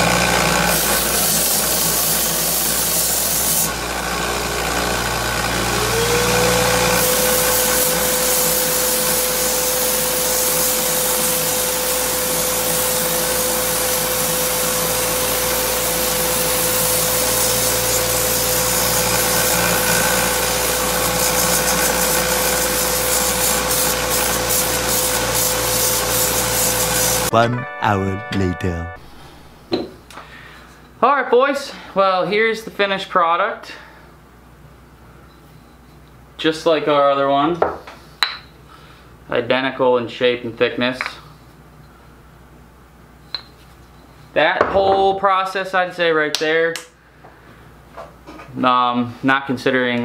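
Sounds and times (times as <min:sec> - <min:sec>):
belt sander sanding wood: 0:04.8 - 0:27.3.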